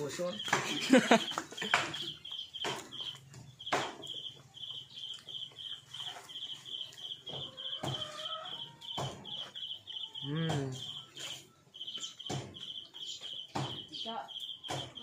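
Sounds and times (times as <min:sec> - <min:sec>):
sharp knocks: 0:01.6 - 0:04.2, 0:12.2 - 0:12.7, 0:13.4 - 0:13.9, 0:14.6 - 0:15.0.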